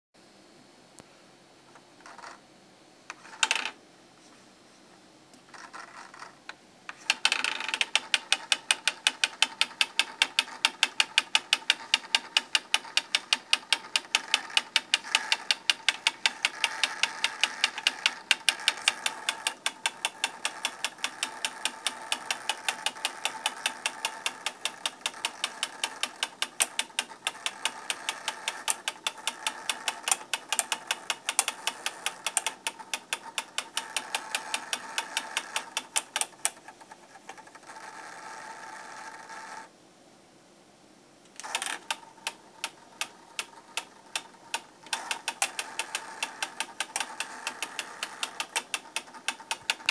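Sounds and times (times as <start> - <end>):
faint steady whine: 0.2 - 49.9
motorised faders ticking: 6.9 - 37.9, 41.3 - 49.9.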